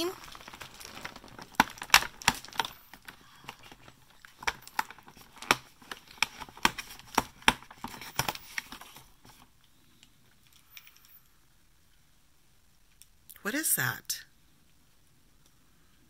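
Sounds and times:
cardboard snapping and tearing: 0:00.3 - 0:03.1, 0:03.8 - 0:08.8.

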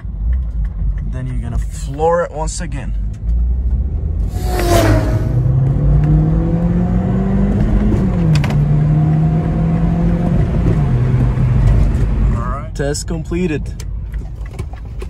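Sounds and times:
car engine at full throttle: 0:03.1 - 0:12.4
brief rush of noise: 0:04.3 - 0:05.5.

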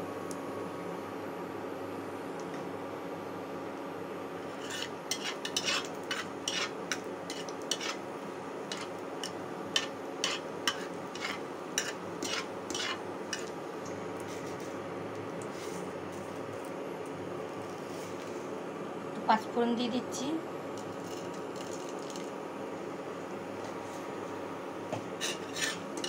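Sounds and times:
steady hum: 0:00.0 - 0:26.0
metal spatula scraping a pan: 0:04.5 - 0:08.0, 0:08.7 - 0:08.9, 0:09.8 - 0:13.5, 0:25.2 - 0:26.0.

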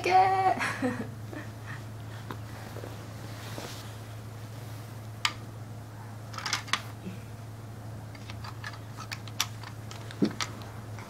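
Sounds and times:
plastic bricks clicking: 0:08.1 - 0:11.0.

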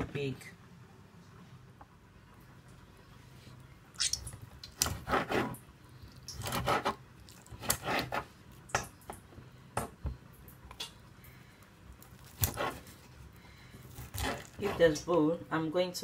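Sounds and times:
knife sawing through meat: 0:06.4 - 0:07.0, 0:07.6 - 0:08.3, 0:12.4 - 0:13.0, 0:14.0 - 0:14.9.

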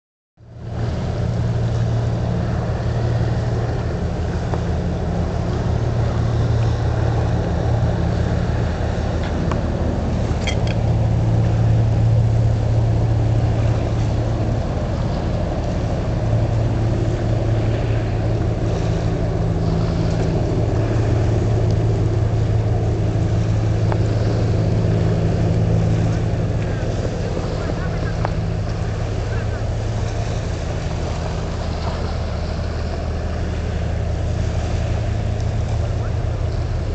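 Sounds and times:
boat engine droning: 0:00.4 - 0:36.9.

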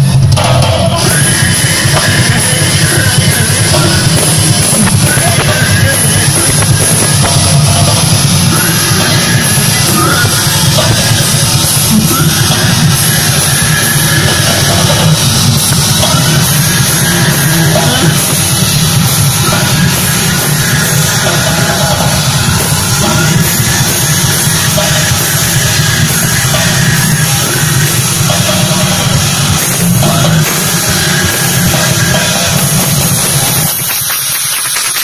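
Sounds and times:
distorted electric guitar: 0:00.0 - 0:35.0
driving drum kit: 0:00.0 - 0:35.0.

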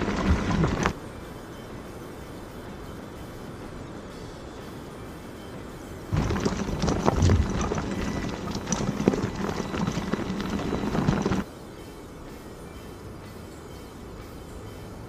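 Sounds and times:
steady low hum: 0:00.0 - 0:15.0
tyre knocking and crunching on stones: 0:06.2 - 0:11.4.

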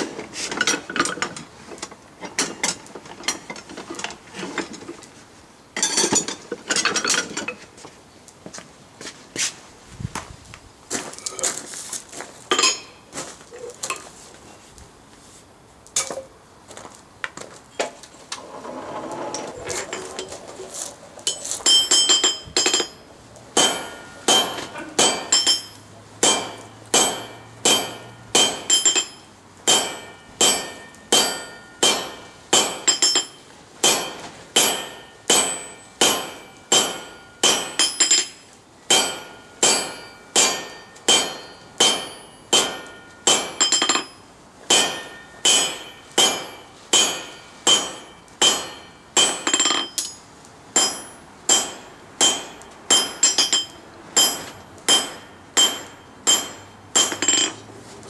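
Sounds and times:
hammer striking metal on anvil: 0:21.3 - 0:23.0, 0:23.6 - 0:50.2, 0:50.8 - 0:57.7.

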